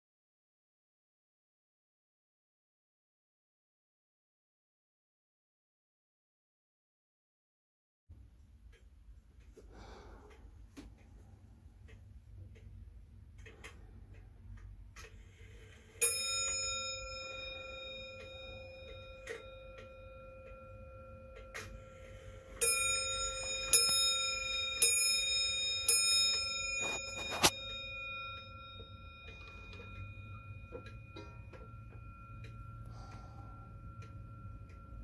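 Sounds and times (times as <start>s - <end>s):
faint clock ticking: 8.2s - 35.0s
clock striking bell: 15.4s - 35.0s.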